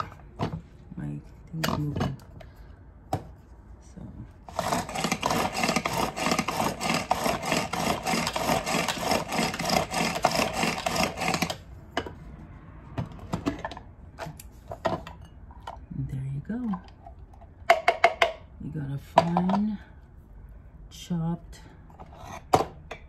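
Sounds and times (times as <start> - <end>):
pull-cord food chopper whirring: 4.5 - 11.7.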